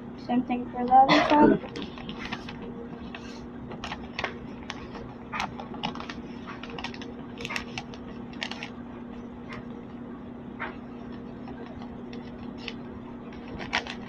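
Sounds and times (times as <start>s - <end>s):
paper crinkling and folding: 1.6s - 8.8s, 11.0s - 14.0s.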